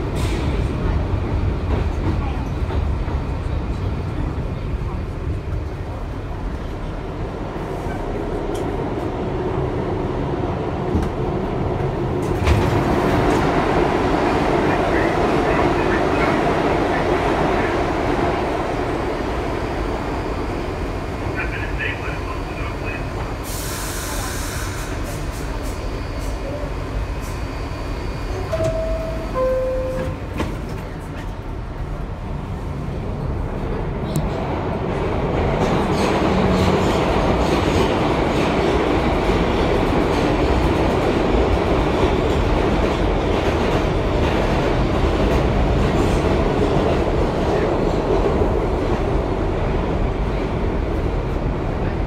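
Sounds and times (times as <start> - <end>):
subway train wheels rumbling: 0.0 - 52.0
two-tone door chime: 28.5 - 30.3.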